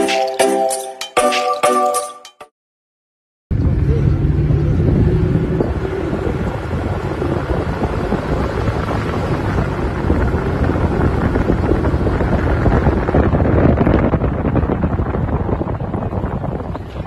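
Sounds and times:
vehicle rumbling on road: 0:03.5 - 0:17.0
wind rushing over microphone: 0:03.5 - 0:17.0.

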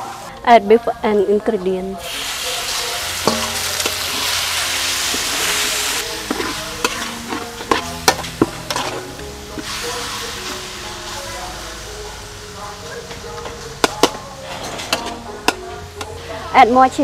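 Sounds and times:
metal spatula scraping a pan: 0:02.0 - 0:10.6, 0:13.4 - 0:16.4
meat sizzling in a pan: 0:02.0 - 0:16.3.

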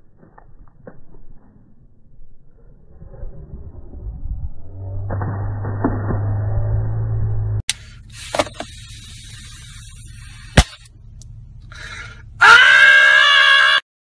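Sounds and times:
man screaming loudly: 0:12.4 - 0:13.8.

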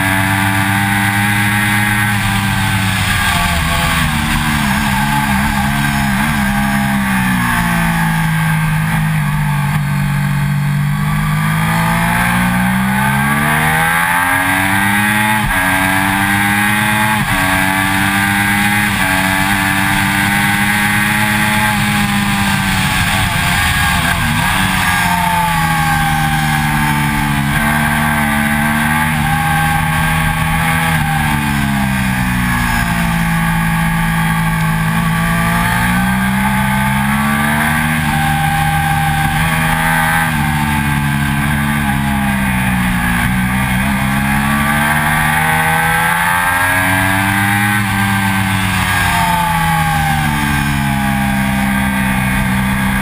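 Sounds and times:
motorcycle engine accelerating: 0:00.0 - 0:53.0.

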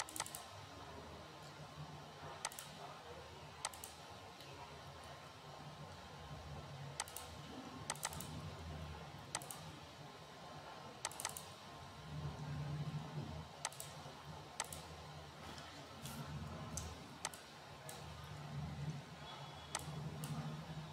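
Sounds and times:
computer mouse clicks: 0:00.0 - 0:00.5, 0:02.4 - 0:02.8, 0:03.6 - 0:04.0, 0:07.0 - 0:07.3, 0:07.9 - 0:08.4, 0:09.3 - 0:09.7, 0:11.0 - 0:11.6, 0:13.6 - 0:14.0, 0:14.6 - 0:14.9, 0:16.0 - 0:18.1, 0:19.7 - 0:20.4
faint low hum: 0:00.0 - 0:20.9.

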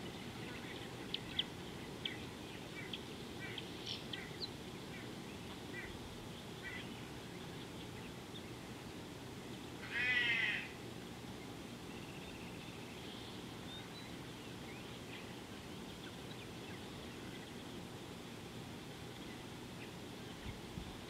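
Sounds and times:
drawn-out animal call: 0:09.8 - 0:10.7.

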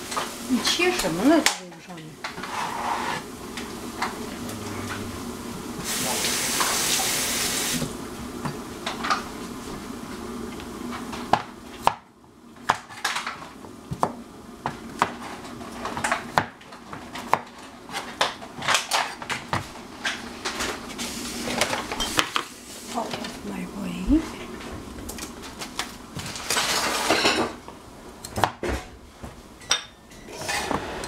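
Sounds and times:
faint steady hum: 0:00.0 - 0:30.7
utensils and dishes clinking: 0:21.5 - 0:22.4, 0:26.3 - 0:27.6, 0:29.6 - 0:31.0.

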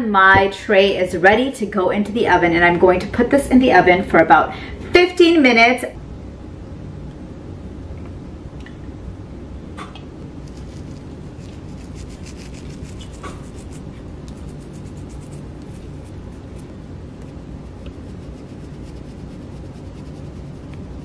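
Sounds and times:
steady low hum: 0:00.0 - 0:21.0
pepper grinder grinding: 0:10.4 - 0:16.6.

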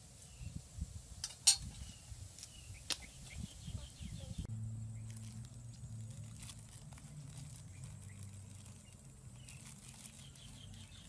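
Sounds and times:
low steady hum: 0:03.6 - 0:10.0
hands handling raw chicken: 0:05.0 - 0:11.0.

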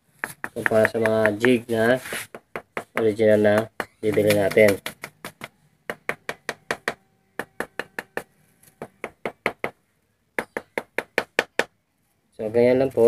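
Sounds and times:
wooden block knocking on mould: 0:00.2 - 0:01.6, 0:02.3 - 0:09.8.

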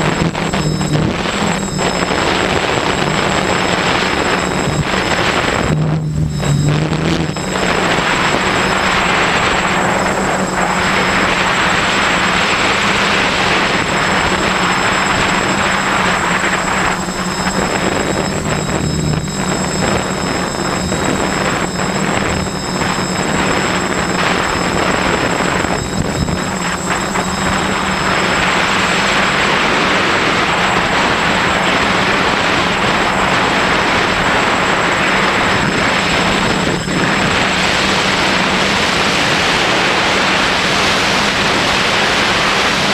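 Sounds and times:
drone motors humming and whining: 0:00.0 - 0:42.9
wind rushing over microphone: 0:00.0 - 0:42.9.

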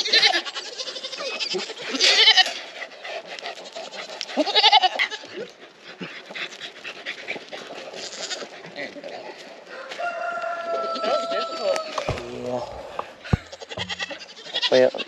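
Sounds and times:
goats bleating: 0:00.0 - 0:02.6, 0:04.3 - 0:05.5, 0:07.9 - 0:08.6, 0:10.6 - 0:15.0.

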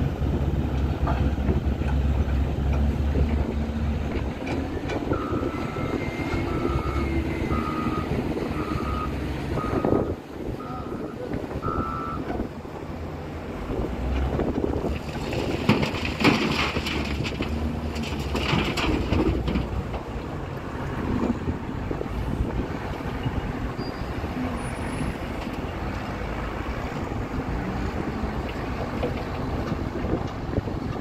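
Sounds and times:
diesel engines under load: 0:00.0 - 0:31.0
wind buffeting microphone: 0:19.1 - 0:24.4.

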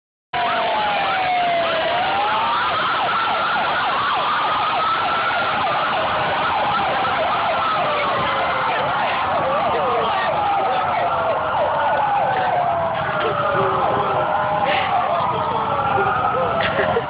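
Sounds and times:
emergency sirens wailing and yelping: 0:00.4 - 0:17.0.

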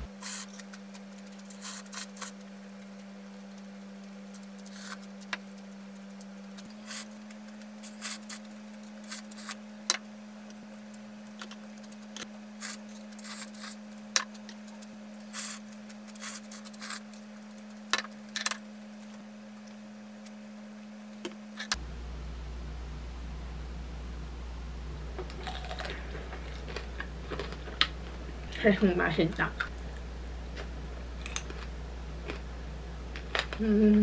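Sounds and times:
low hum: 0:00.0 - 0:34.0
chewing: 0:25.3 - 0:28.2.

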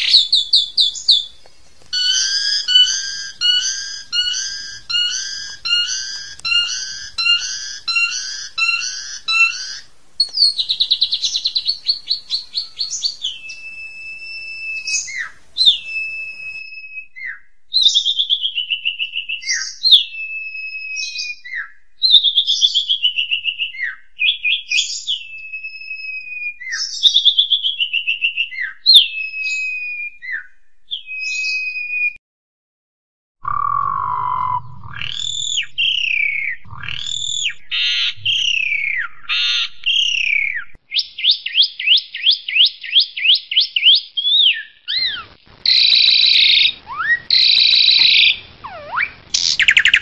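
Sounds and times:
starling singing: 0:00.0 - 0:16.6, 0:33.4 - 0:50.0.

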